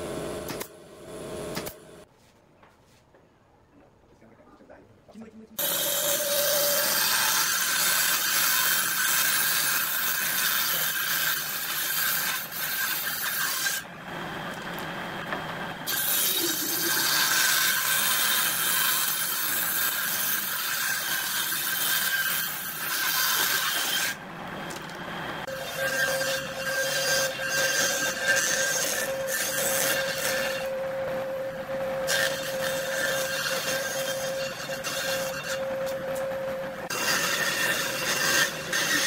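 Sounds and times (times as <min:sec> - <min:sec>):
circular saw cutting wood: 0:05.6 - 0:13.9, 0:14.6 - 0:24.8, 0:25.4 - 0:39.0.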